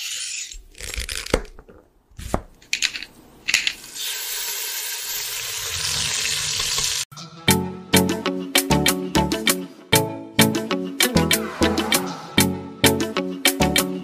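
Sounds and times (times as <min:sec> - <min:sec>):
quick swishes: 0:11.2 - 0:12.6.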